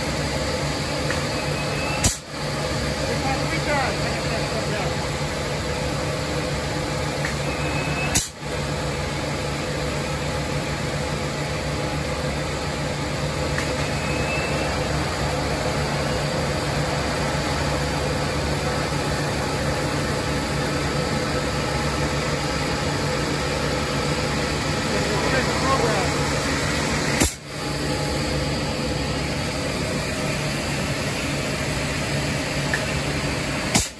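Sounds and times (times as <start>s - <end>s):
droning machinery hum: 0.0s - 33.9s
sharp click: 2.0s - 2.3s, 8.1s - 8.4s.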